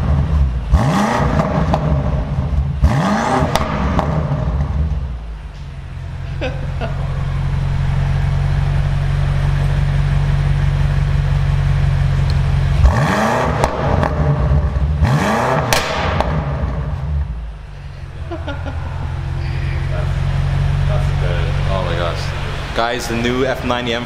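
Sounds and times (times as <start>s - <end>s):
car engine idling and revving: 0.0s - 24.0s.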